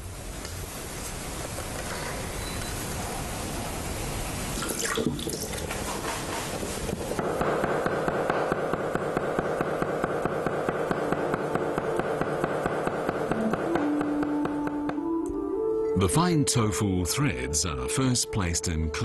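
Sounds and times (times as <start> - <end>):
steady hiss: 0.0 - 14.8.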